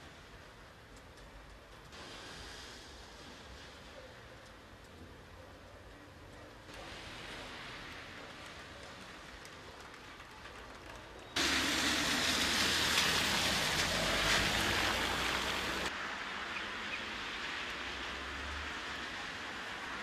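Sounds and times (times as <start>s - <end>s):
tyres hissing on wet road: 1.8s - 4.4s, 6.6s - 9.7s, 11.4s - 20.0s
engine rumble: 2.5s - 15.9s.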